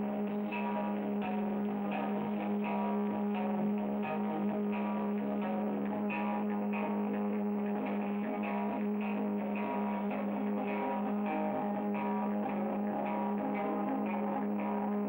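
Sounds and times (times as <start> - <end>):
electric guitar: 0.0 - 15.0.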